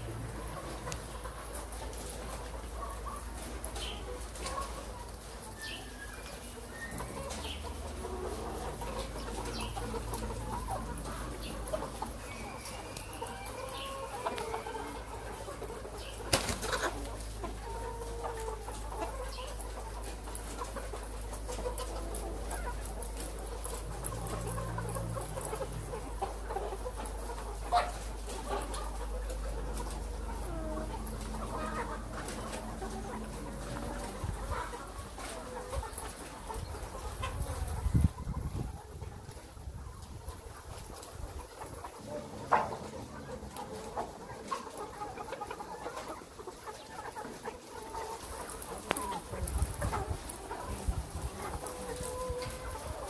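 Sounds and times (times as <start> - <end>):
hens clucking: 0.0 - 53.0.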